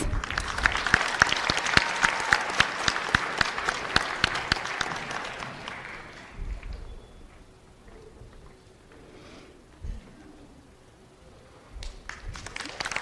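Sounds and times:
loud close claps: 0:00.0 - 0:06.9, 0:11.8 - 0:13.0
audience applauding: 0:00.0 - 0:07.2, 0:11.8 - 0:13.0.

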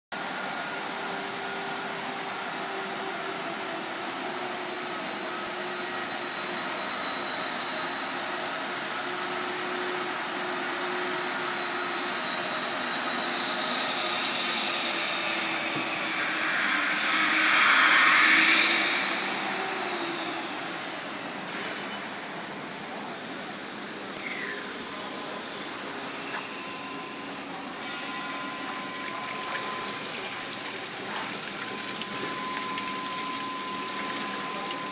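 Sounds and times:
whirring machine: 0:00.2 - 0:34.9
high whines: 0:12.0 - 0:22.2, 0:23.7 - 0:34.9
loud hiss: 0:14.1 - 0:21.1.

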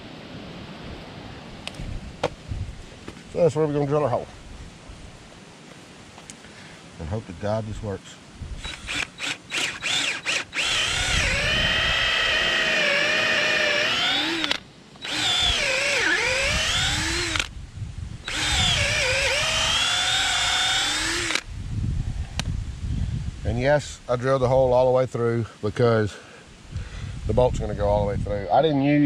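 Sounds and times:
cordless drill boring into wood: 0:08.6 - 0:17.5, 0:18.2 - 0:21.5.

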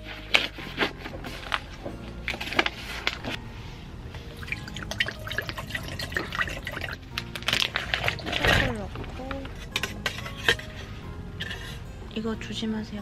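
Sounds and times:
background music: 0:00.0 - 0:13.0
liquid being poured: 0:04.4 - 0:08.4
pot and packaging clicks: 0:05.0 - 0:10.6.

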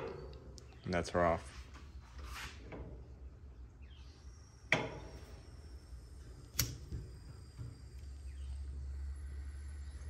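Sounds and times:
camp stove ignition clicks: 0:06.4 - 0:08.1.

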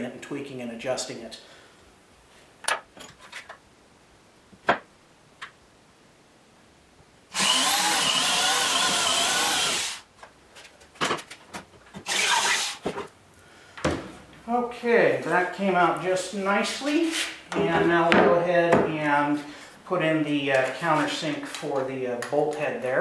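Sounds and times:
electric drill boring through plywood: 0:07.3 - 0:10.0, 0:12.0 - 0:12.8.

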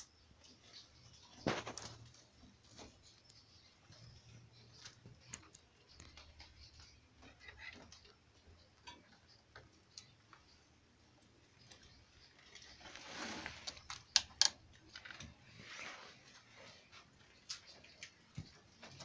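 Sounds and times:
rabbits rustling in straw: 0:00.5 - 0:05.0, 0:12.0 - 0:14.0, 0:15.3 - 0:17.4.

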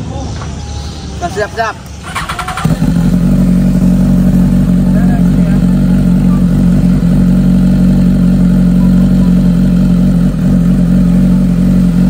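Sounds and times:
motorcycle engine running loud: 0:02.0 - 0:12.0.

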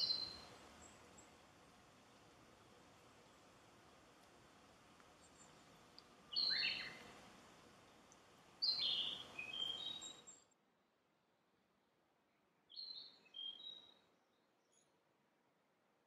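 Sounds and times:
bird singing whistled notes: 0:00.0 - 0:01.0, 0:06.3 - 0:07.0, 0:08.6 - 0:10.4, 0:12.7 - 0:14.1.

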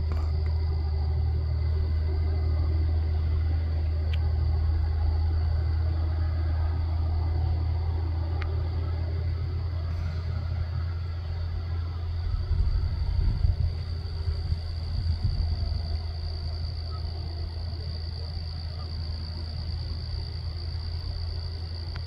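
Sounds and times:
wind buffeting microphone: 0:12.2 - 0:16.1.

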